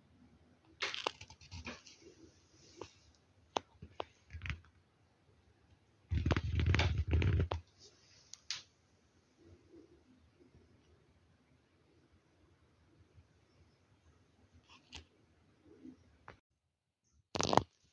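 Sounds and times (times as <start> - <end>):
scratches and clicks on nylon: 17.4 - 17.8.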